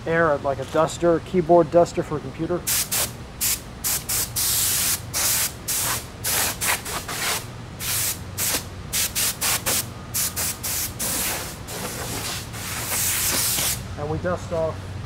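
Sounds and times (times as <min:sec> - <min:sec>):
compressed air hissing blasts: 0:02.7 - 0:13.9.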